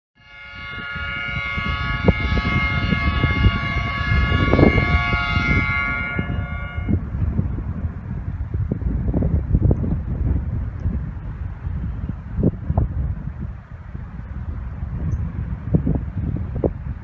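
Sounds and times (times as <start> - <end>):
locomotive horn blast: 0.2 - 7.1
wind rumbling on microphone: 0.2 - 17.0.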